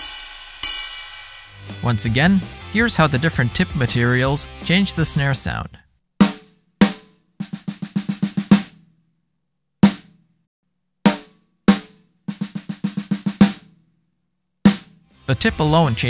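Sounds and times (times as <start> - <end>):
snare drum hits: 9.8 - 10.1.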